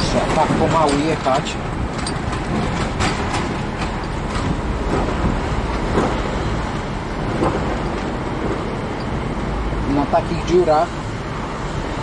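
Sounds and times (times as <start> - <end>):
light knocks and rattles: 0.0 - 6.4
truck engine and road rumble: 0.0 - 12.0.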